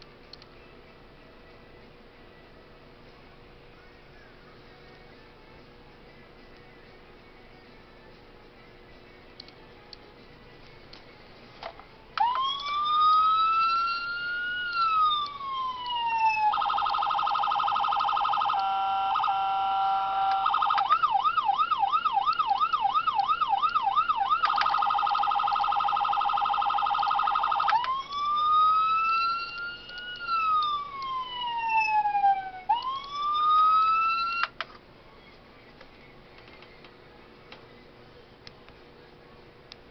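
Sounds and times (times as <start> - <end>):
toy police siren: 12.2 - 34.5.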